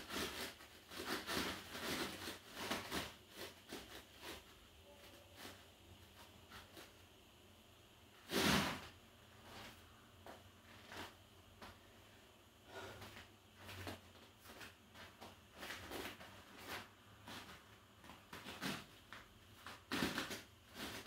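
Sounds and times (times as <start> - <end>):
rubbing of feet and disc: 0.0 - 6.9, 12.9 - 21.0.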